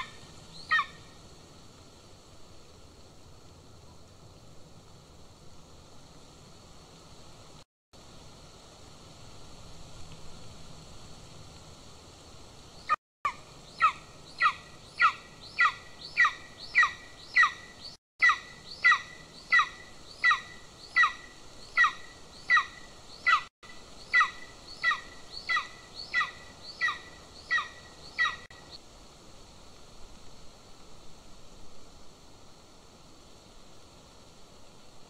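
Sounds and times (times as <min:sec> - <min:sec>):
eagle yelping calls: 0:00.0 - 0:01.1, 0:13.3 - 0:23.5, 0:24.1 - 0:28.5.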